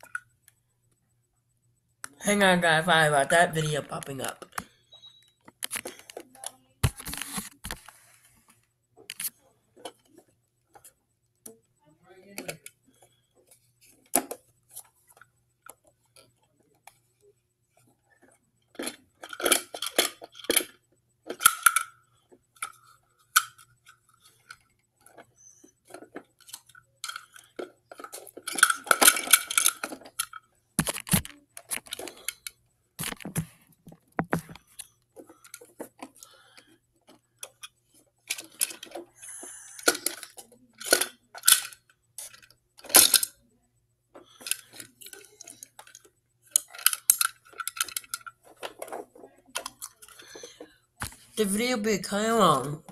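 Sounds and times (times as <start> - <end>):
plastic toys clicking and clattering: 3.5 - 4.8, 5.4 - 8.0, 9.0 - 11.6, 17.8 - 43.4, 44.1 - 52.9.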